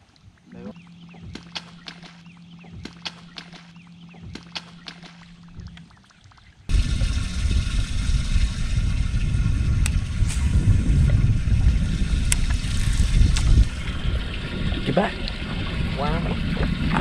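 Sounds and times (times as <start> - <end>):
sharp clicks: 1.1 - 5.9
wind buffeting microphone: 6.7 - 17.0.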